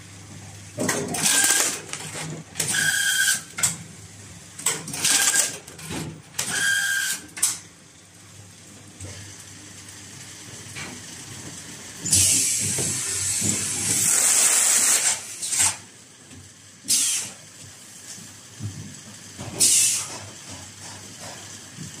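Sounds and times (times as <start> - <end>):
carton sealing machine running: 0.6 - 7.6, 8.6 - 16.1, 16.8 - 17.5, 19.4 - 22.0
compressed air hissing: 16.9 - 17.4, 19.6 - 20.1.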